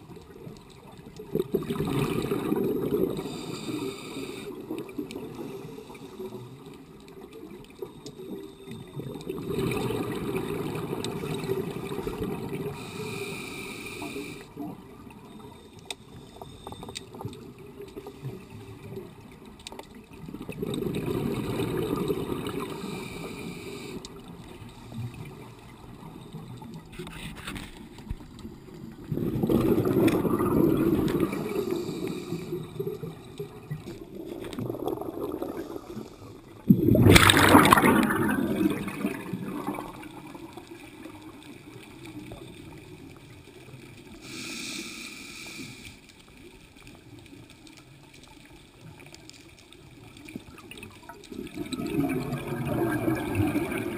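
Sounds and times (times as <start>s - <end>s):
underwater bubbles bursting: 0.0s - 3.8s, 4.6s - 13.0s, 16.8s - 23.0s, 28.1s - 44.2s, 49.7s - 53.9s
low hiss: 2.6s - 20.0s, 35.2s - 52.6s.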